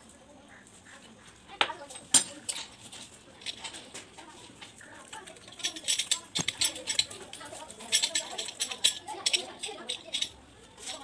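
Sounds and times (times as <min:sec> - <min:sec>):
tap being fitted clicks and scrapes: 0:01.6 - 0:09.4.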